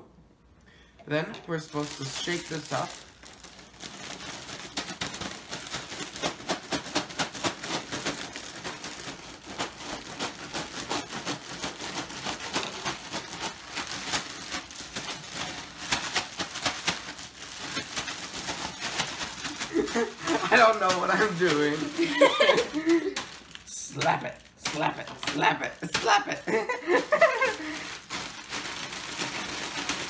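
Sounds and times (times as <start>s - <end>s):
plastic bag crinkling: 1.0s - 30.0s
popcorn tumbling in a bag: 1.0s - 30.0s.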